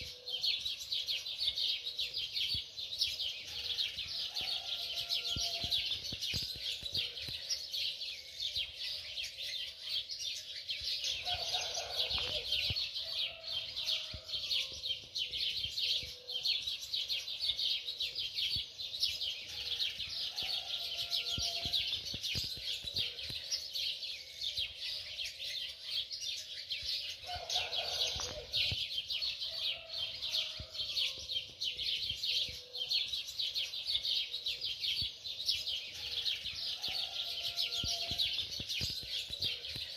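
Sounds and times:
small birds chirping: 0.0 - 39.9.

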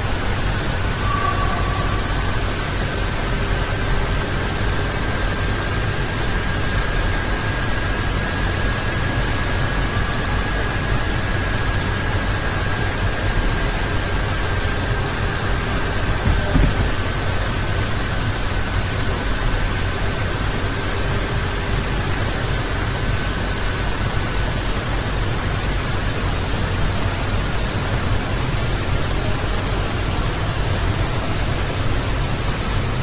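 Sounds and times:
faint thin whine: 0.8 - 3.4.

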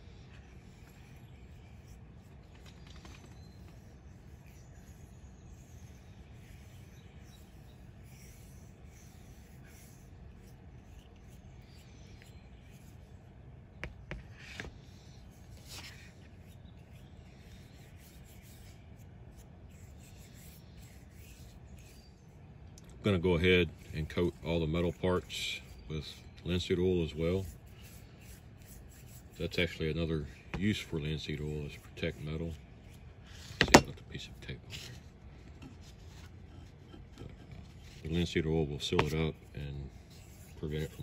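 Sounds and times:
steady low hum: 0.0 - 41.0
paintbrush bristles swishing: 38.9 - 41.0.

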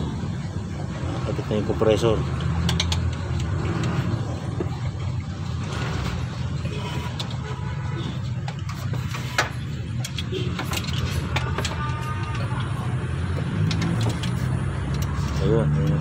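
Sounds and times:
hand tools clicking and clinking: 2.2 - 4.7, 8.4 - 16.0.

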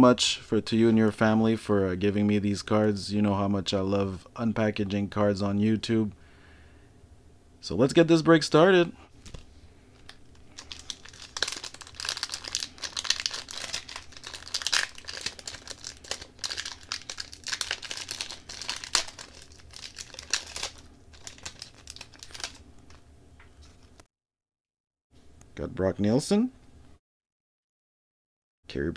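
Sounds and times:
wrapper tearing and crinkling: 10.0 - 23.0.

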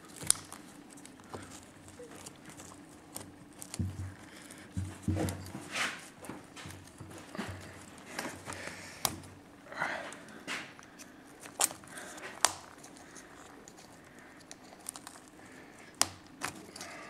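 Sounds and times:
cloth rag rustling: 0.0 - 10.8.

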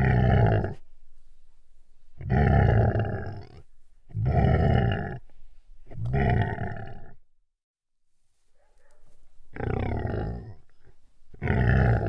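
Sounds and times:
animal growls: 0.0 - 0.8, 2.2 - 5.2, 5.9 - 7.2, 9.5 - 12.0.

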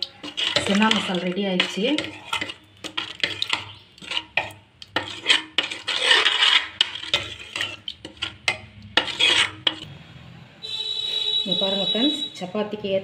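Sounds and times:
wet swishing and scraping: 0.2 - 9.9.

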